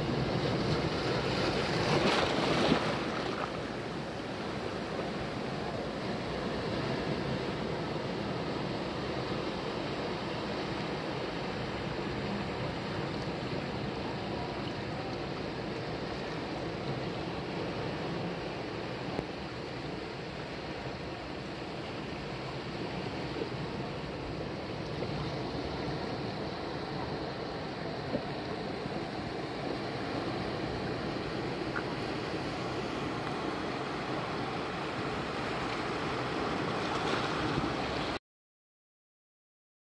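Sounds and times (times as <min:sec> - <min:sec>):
surf breaking over rocks: 0:00.0 - 0:05.5
ocean waves on beach: 0:00.0 - 0:38.2.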